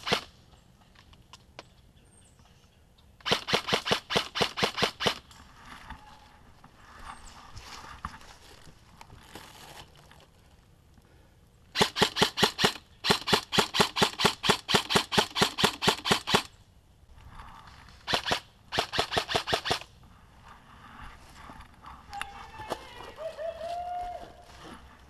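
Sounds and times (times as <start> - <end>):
airsoft rifle firing: 0.0 - 0.4, 3.2 - 5.2, 11.8 - 16.5, 18.1 - 19.9.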